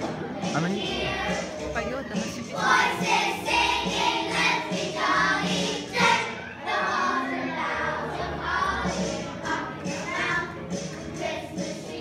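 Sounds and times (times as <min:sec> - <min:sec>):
children singing with music: 0:00.0 - 0:12.0.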